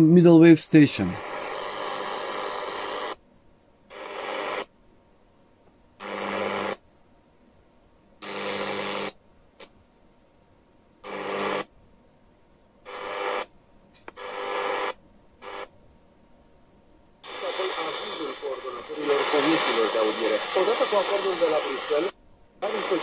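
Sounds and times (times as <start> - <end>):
radio static bursts: 0.8 - 3.2, 17.2 - 23.0.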